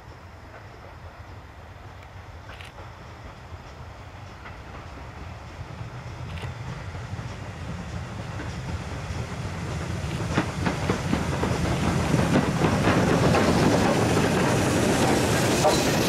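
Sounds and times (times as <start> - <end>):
steam hiss: 0.0 - 16.0
steam train rumble: 0.0 - 16.0
wheels clicking over rail joints: 10.0 - 16.0.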